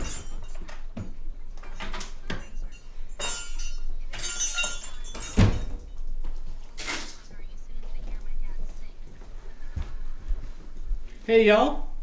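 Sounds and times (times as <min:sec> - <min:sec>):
glass clinking and shattering: 0:00.0 - 0:06.0.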